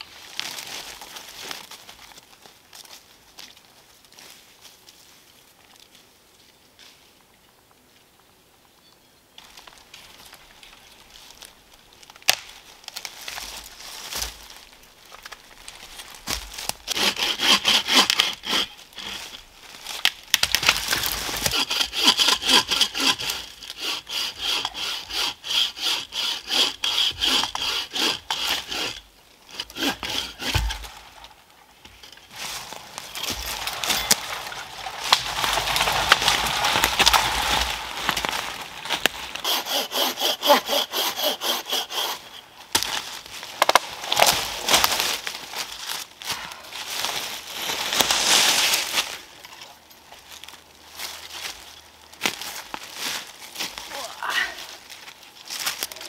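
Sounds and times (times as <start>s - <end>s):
footsteps in dry leaves: 0.0s - 5.6s, 9.4s - 16.9s, 18.8s - 21.5s, 30.7s - 40.1s, 41.7s - 56.0s
bucksaw cutting log: 16.3s - 19.4s, 20.4s - 30.9s, 39.0s - 43.0s.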